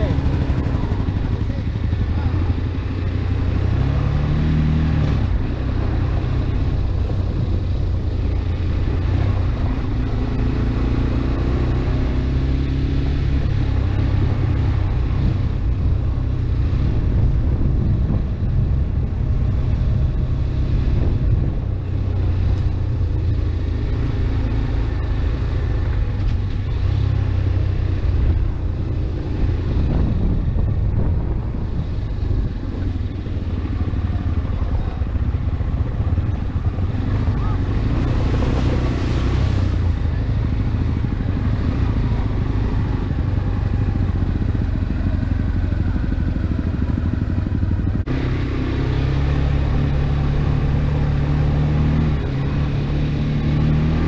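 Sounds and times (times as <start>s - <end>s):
motorcycle engine revving: 0.0s - 54.0s
motorcycle engine running: 0.0s - 54.0s
wind rush: 3.6s - 11.3s, 13.4s - 23.4s, 26.1s - 54.0s.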